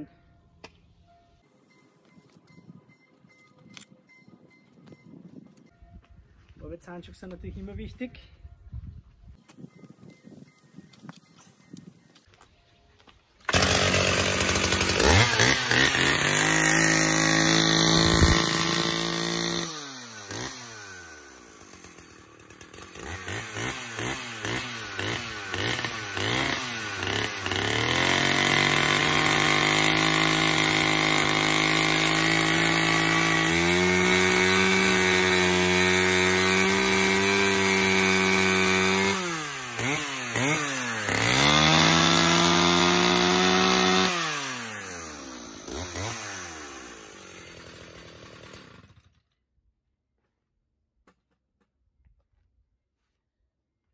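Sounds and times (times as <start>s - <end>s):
chainsaw cutting cardboard: 13.4s - 49.3s
chainsaw revving: 13.5s - 49.2s.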